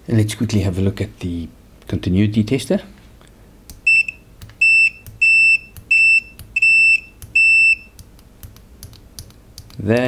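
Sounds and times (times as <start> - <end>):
multimeter continuity beep: 3.8 - 8.0.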